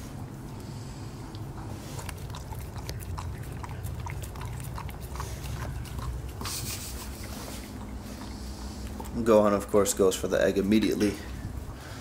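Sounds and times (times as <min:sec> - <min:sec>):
dog chewing wetly: 0:00.6 - 0:10.3
dog licking metal bowl: 0:01.3 - 0:10.0.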